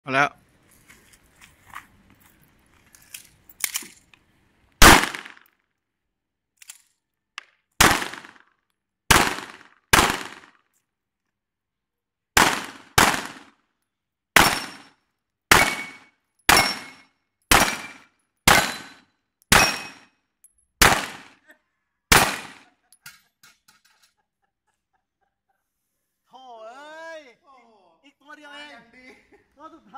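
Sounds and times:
pistol shots with echo: 0:04.8 - 0:05.4, 0:09.1 - 0:10.5, 0:12.4 - 0:13.5, 0:14.4 - 0:14.9, 0:15.5 - 0:20.1, 0:20.8 - 0:21.4, 0:22.1 - 0:22.6.

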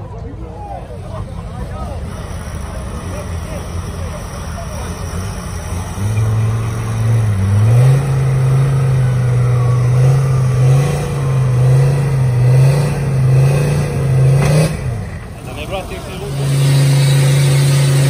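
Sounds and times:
vehicle engine revving hard: 0:04.8 - 0:18.0.

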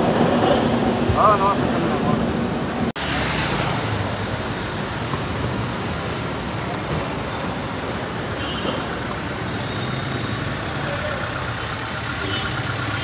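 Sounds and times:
street traffic: 0:00.0 - 0:13.0
tram approaching on tracks: 0:00.0 - 0:13.0
high wheel squeal: 0:03.2 - 0:13.0.

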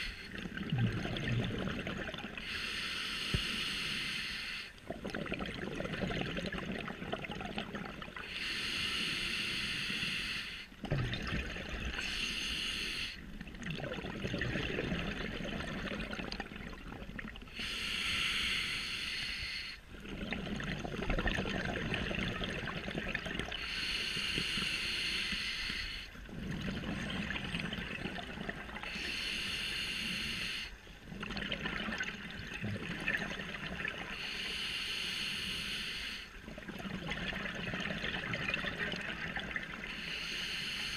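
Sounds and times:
bubbling exhalations: 0:00.0 - 0:02.4, 0:04.9 - 0:08.2, 0:10.8 - 0:12.0, 0:13.6 - 0:17.4, 0:20.0 - 0:23.6
hissing regulator inhalations: 0:02.4 - 0:04.8, 0:08.2 - 0:10.8, 0:12.0 - 0:13.2, 0:17.5 - 0:19.9, 0:23.5 - 0:26.2, 0:28.8 - 0:30.8, 0:34.1 - 0:36.4, 0:39.8 - 0:40.9.

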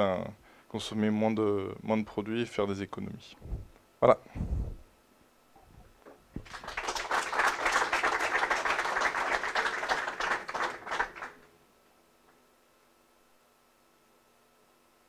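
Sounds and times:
audience applause: 0:06.4 - 0:11.5.

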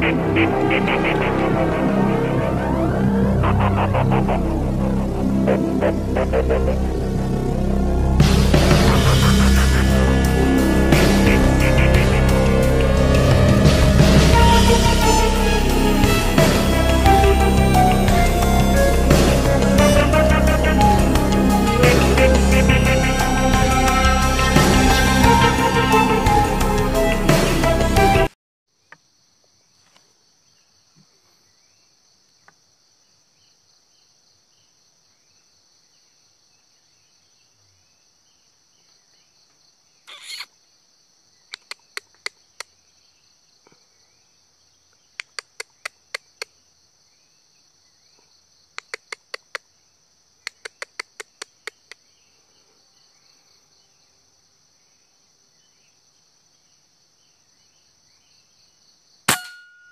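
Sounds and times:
high-pitched insect drone: 0:00.0 - 0:27.1
sharp clicks: 0:41.5 - 0:42.7, 0:45.2 - 0:46.5, 0:48.8 - 0:49.6, 0:50.5 - 0:52.0.

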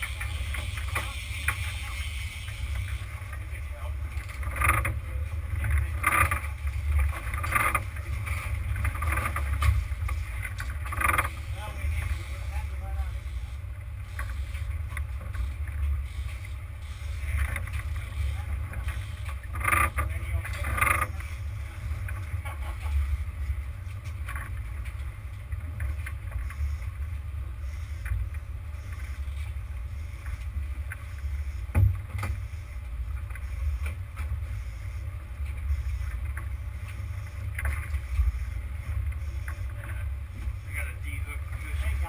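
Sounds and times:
boat engine rumbling: 0:00.0 - 0:42.0.

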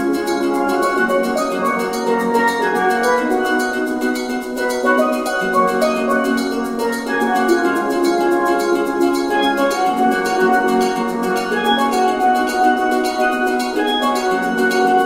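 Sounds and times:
melodic notes: 0:00.0 - 0:15.0
steady percussive beat: 0:00.0 - 0:15.0.

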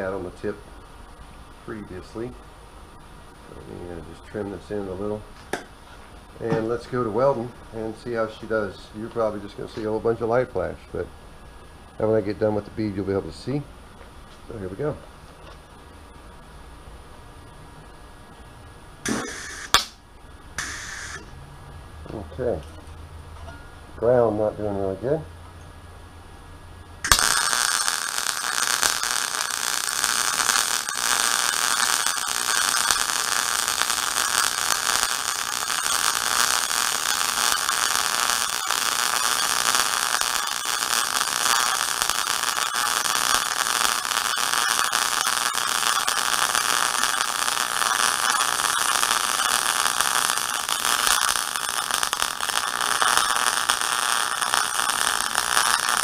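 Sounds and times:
welding arc crackling: 0:00.0 - 0:00.6, 0:19.0 - 0:20.0, 0:20.6 - 0:21.3, 0:27.0 - 0:56.0.

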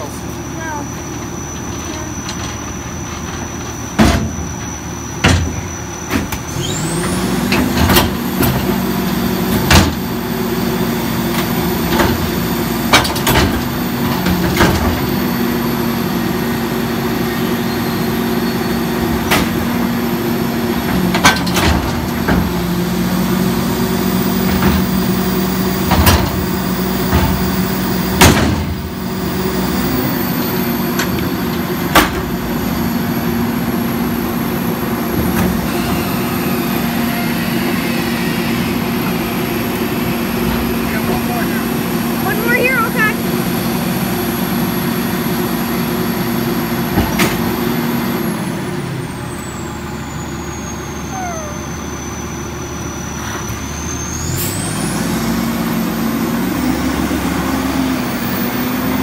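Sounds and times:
garbage truck engine revving: 0:00.0 - 0:59.0
hydraulic lift whine: 0:00.0 - 0:59.0
dumpster banging and clanking: 0:00.6 - 0:43.5, 0:46.0 - 0:48.2.

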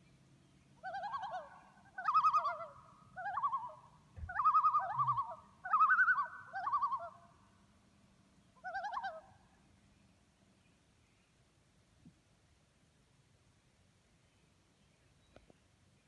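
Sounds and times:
loons calling in tremolo: 0:04.3 - 0:07.1.

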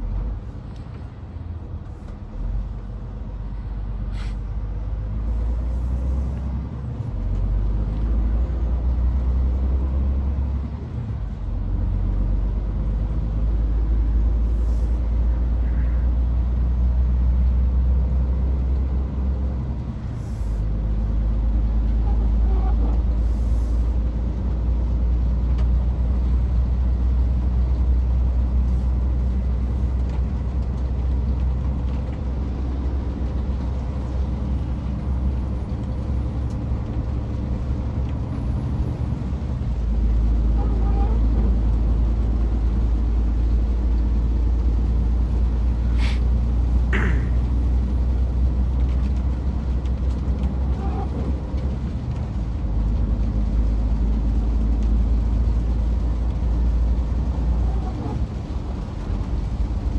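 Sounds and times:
truck engine and road drone: 0:00.0 - 0:59.9
short airy hisses: 0:04.1 - 0:04.4, 0:45.9 - 0:46.3.

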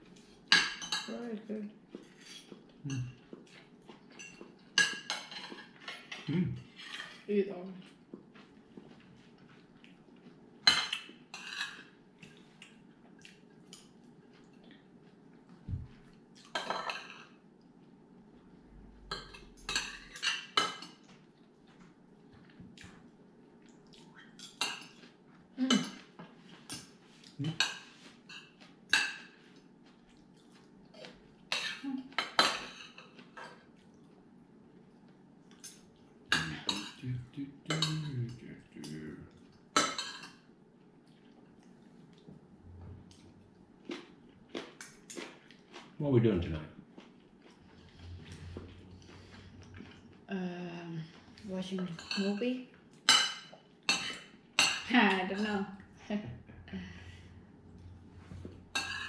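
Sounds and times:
cutlery clinking on plates: 0:04.1 - 0:07.2, 0:58.7 - 0:59.0.

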